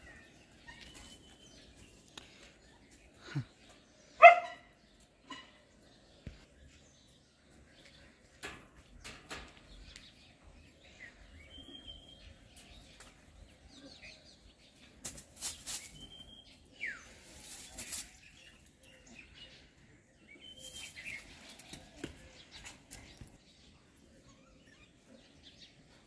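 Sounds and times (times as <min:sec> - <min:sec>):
monkeys rustling through branches: 0:15.0 - 0:16.2, 0:17.2 - 0:18.4.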